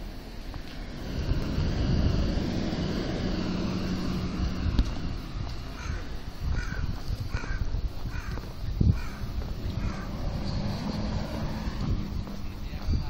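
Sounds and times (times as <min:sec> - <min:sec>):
low background rumble: 0:00.0 - 0:13.0
crow cawing: 0:05.7 - 0:10.2.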